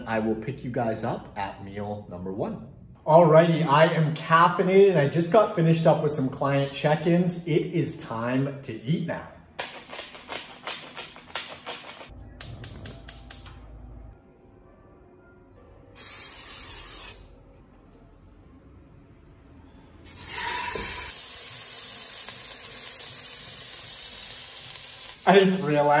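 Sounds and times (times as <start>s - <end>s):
steak sizzling in a pan: 20.1s - 26.0s.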